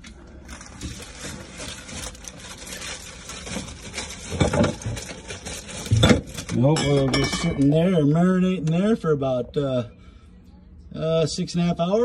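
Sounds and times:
containers shifted on fridge shelves: 3.4s - 7.7s
clinks of bottles: 6.8s - 7.7s.

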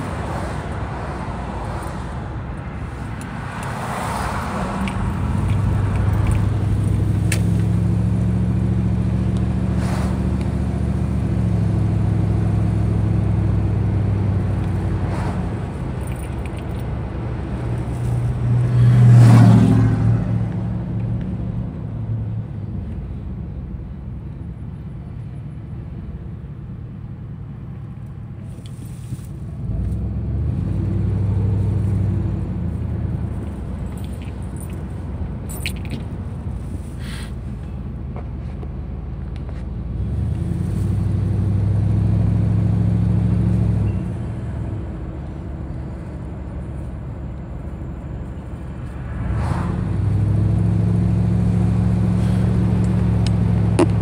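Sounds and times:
car engine accelerating: 3.7s - 22.3s, 39.9s - 54.0s.

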